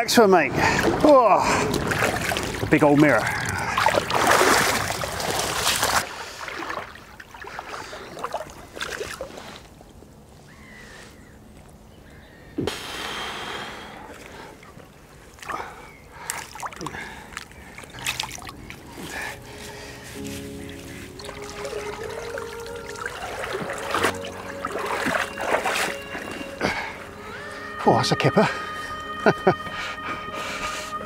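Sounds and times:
water splashing and trickling: 0.6s - 10.3s, 13.8s - 28.6s.

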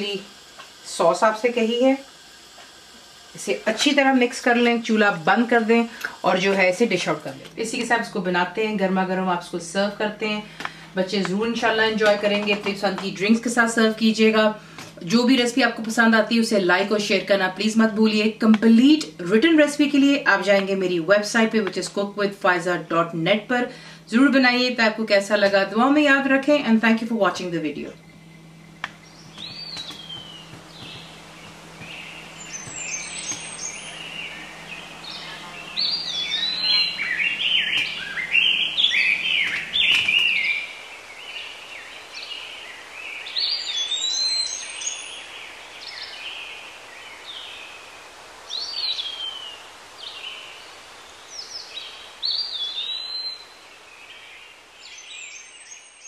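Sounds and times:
songbirds chirping and singing: 28.0s - 56.0s.

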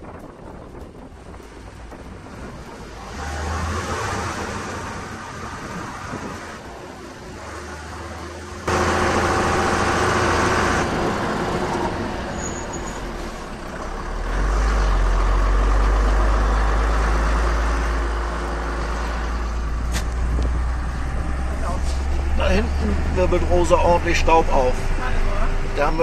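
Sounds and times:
wind noise: 0.0s - 13.4s, 15.4s - 25.8s
truck engine drone: 0.0s - 26.0s
tyre noise: 17.7s - 23.6s.

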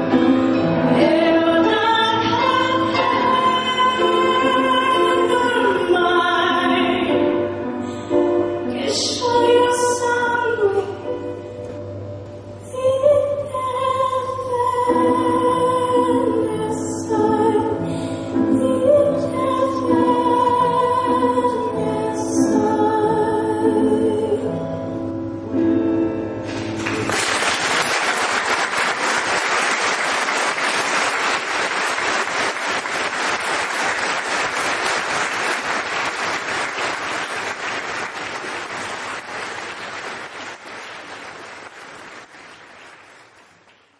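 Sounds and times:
piano accompaniment: 0.0s - 43.8s
woman singing into microphone: 0.9s - 7.3s, 8.6s - 11.2s, 12.7s - 24.6s
audience applauding: 26.5s - 43.9s.

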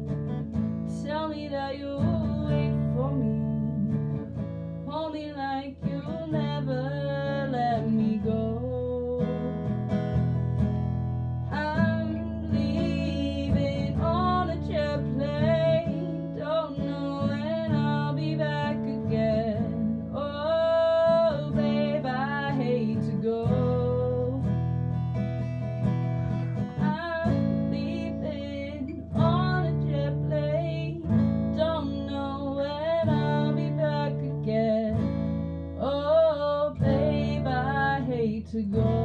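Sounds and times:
strummed acoustic guitar: 0.0s - 39.0s
person singing: 11.5s - 24.5s, 26.8s - 35.1s.

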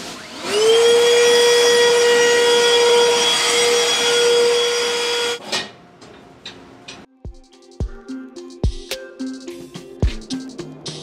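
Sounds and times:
vacuum cleaner running: 0.0s - 5.4s.

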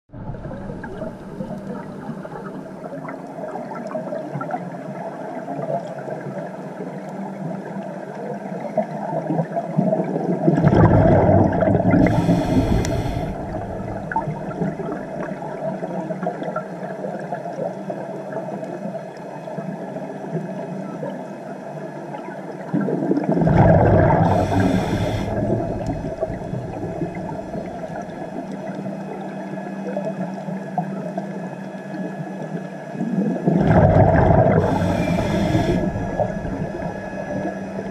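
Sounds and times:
gurgling exhaled bubbles: 0.1s - 4.6s, 9.2s - 16.5s, 22.6s - 29.0s, 32.9s - 37.9s
steady underwater hum: 0.1s - 37.9s.

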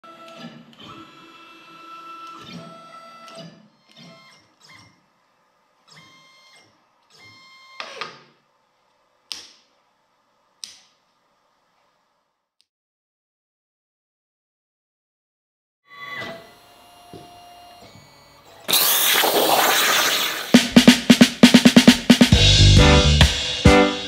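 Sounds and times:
stepper motors whining: 18.5s - 20.8s.

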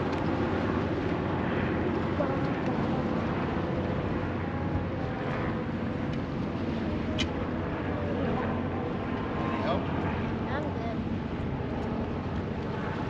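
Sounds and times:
low outdoor rumble: 0.0s - 13.0s.

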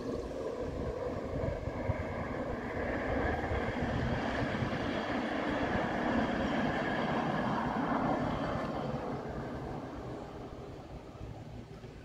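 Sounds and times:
truck engine and wheels on rails: 0.0s - 12.0s.

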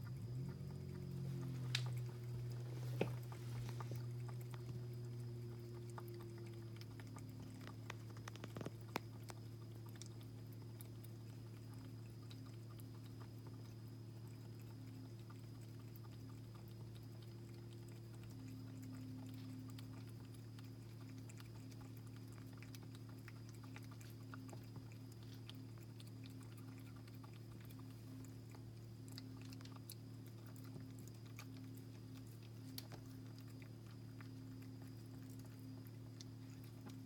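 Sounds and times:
cat chewing and licking: 0.0s - 37.0s
low hum: 0.0s - 37.0s.

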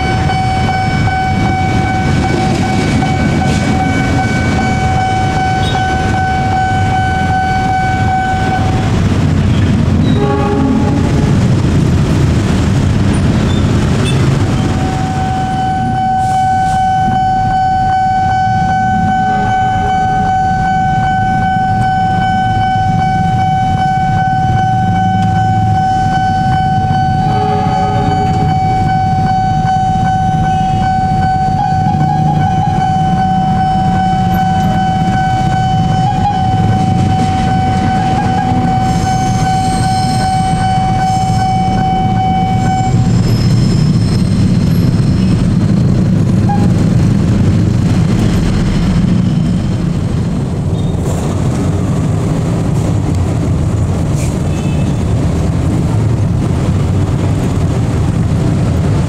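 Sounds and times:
train horn blasts: 0.0s - 11.6s, 14.0s - 44.0s, 46.3s - 46.9s
level crossing warning siren: 0.0s - 13.2s, 13.8s - 50.6s
train rumble: 0.0s - 59.0s.

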